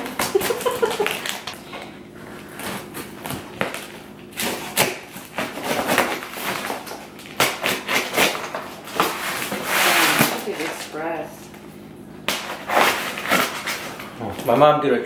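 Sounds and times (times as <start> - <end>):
knife slitting packing tape: 2.6 - 10.8, 12.3 - 14.0.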